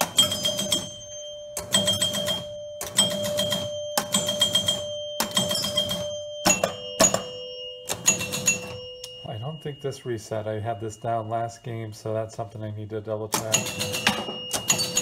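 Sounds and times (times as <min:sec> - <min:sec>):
pinball chime ringing: 0:00.0 - 0:15.0
relays and score reels clattering: 0:13.3 - 0:15.0.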